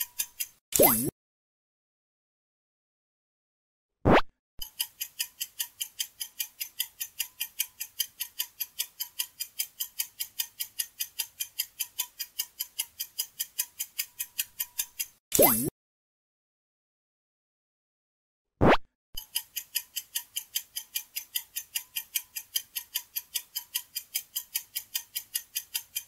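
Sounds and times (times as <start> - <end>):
clock ticking: 0.0 - 1.1, 4.6 - 15.7, 19.2 - 26.0.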